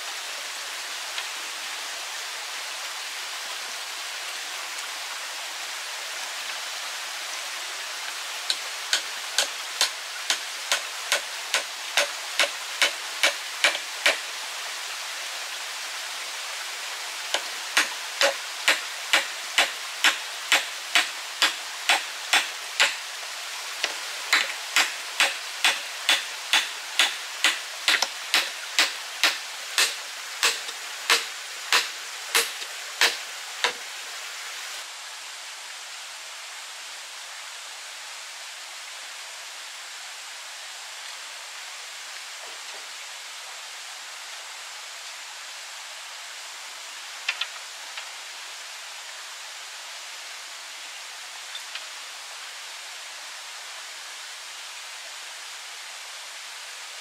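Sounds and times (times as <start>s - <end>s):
steady hiss: 0.0s - 57.0s
hammer driving a nail: 8.9s - 14.2s, 17.8s - 23.0s, 24.3s - 33.8s.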